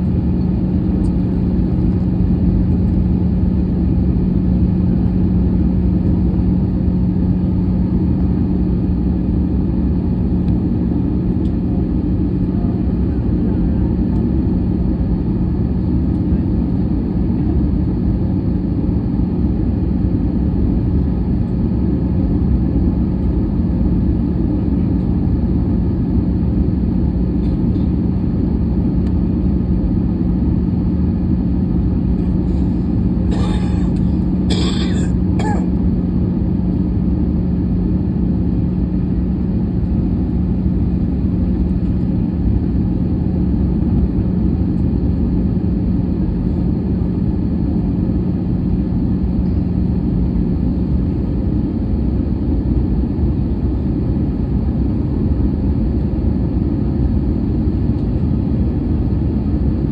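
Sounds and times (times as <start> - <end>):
airflow over fuselage: 0.0 - 18.3, 19.0 - 59.9
constant low hum: 0.0 - 59.9
jet engine roar in cabin: 0.0 - 59.9.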